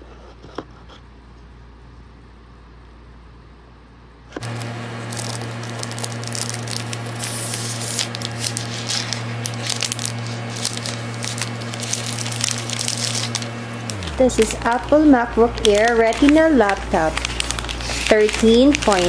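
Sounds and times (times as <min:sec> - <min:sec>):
low electrical hum: 0:00.0 - 0:19.0
plastic wrap crinkling: 0:04.4 - 0:19.0.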